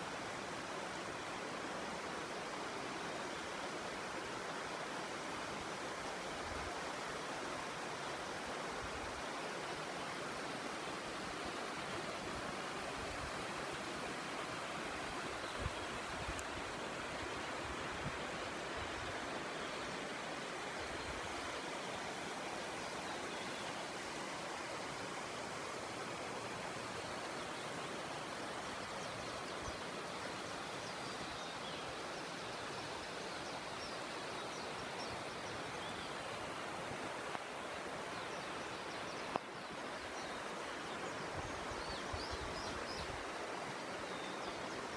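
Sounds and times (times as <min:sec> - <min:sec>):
river water rushing: 0:00.0 - 0:44.9
faint clicks: 0:16.3 - 0:16.6, 0:39.3 - 0:39.5.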